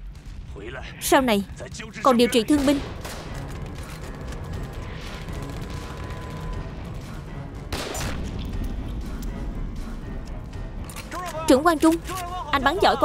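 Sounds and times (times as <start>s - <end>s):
background music: 0.0s - 13.0s
distant gunfire crackle: 2.6s - 9.2s
loud gunshot: 7.7s - 8.5s.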